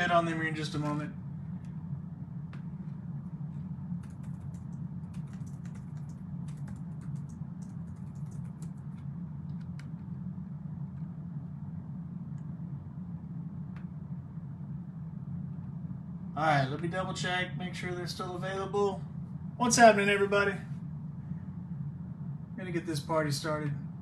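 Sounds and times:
steady low hum: 0.0 - 24.0
typing on computer keyboard: 4.0 - 10.1.

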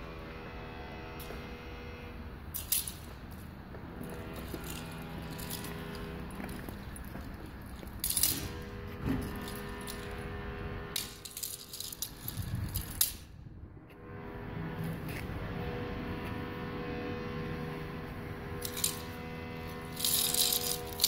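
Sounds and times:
toy stroller rattling over stone steps: 4.0 - 8.6, 11.0 - 13.0, 18.6 - 19.1, 19.9 - 21.0.

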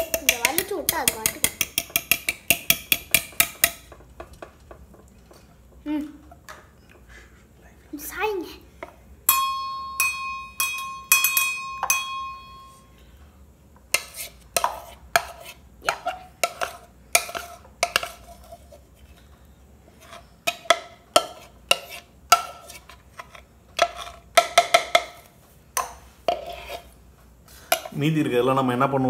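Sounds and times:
bowl knocking against cups: 0.0 - 5.4, 23.8 - 25.2
metal cups and bowl clinking: 0.0 - 5.4, 9.3 - 13.0.

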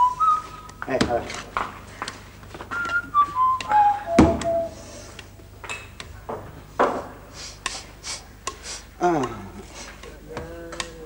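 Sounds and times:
whistling falling in steps: 0.0 - 0.8, 2.6 - 4.8.

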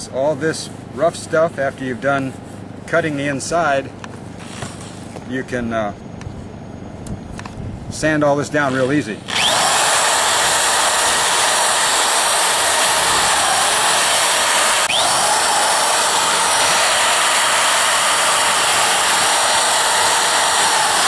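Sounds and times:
electric drill sanding: 8.7 - 21.0.

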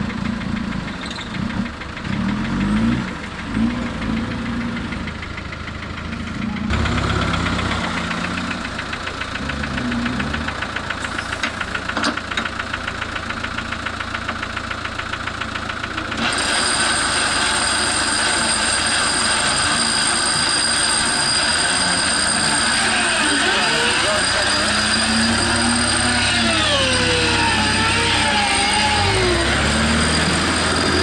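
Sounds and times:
engine running with high whine: 0.0 - 31.0
vehicle engine clattering: 0.0 - 31.0.

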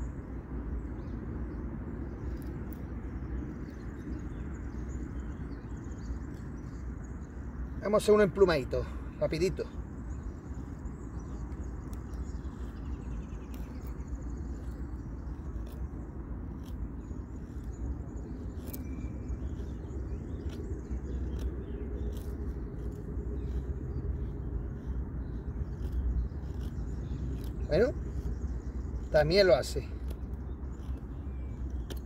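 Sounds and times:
low outdoor rumble: 0.0 - 32.0
knife scraping wood: 20.4 - 28.3, 29.9 - 32.0
small clicks: 30.0 - 32.0.

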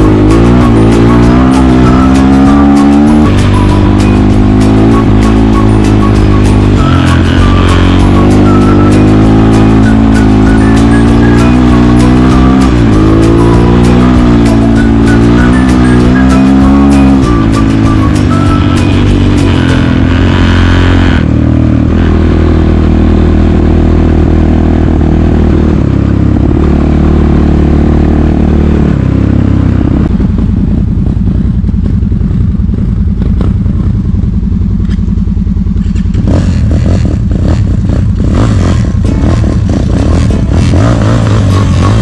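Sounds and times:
motorcycle engine at low revs: 0.0 - 42.0
vehicle engine running: 0.0 - 42.0.

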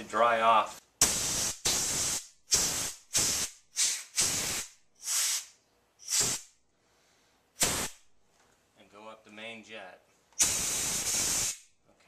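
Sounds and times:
compressed air puffs hissing: 1.0 - 8.0, 10.4 - 11.7.

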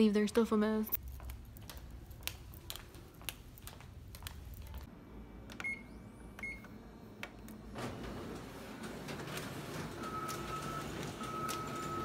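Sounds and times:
footsteps on tiled floor: 1.0 - 4.9.

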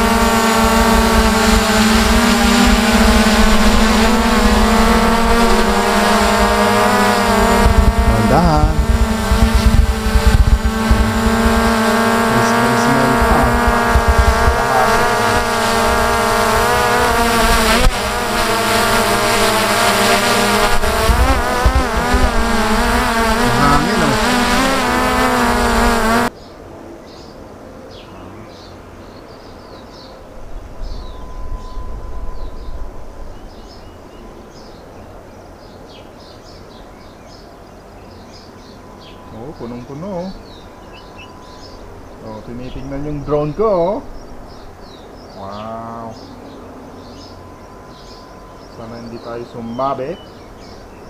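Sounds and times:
drone propellers whining: 0.0 - 26.3
faint high chirps: 38.6 - 42.9.

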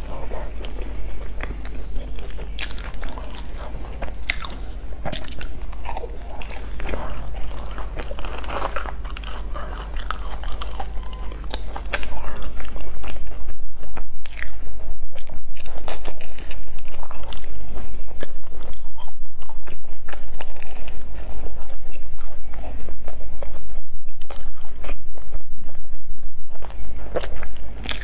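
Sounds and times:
crunching and chewing of bun: 0.0 - 28.0.

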